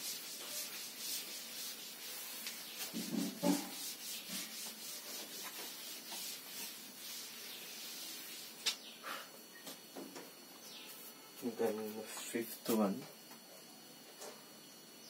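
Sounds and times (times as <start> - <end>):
duster wiping a chalkboard: 0.0 - 8.9.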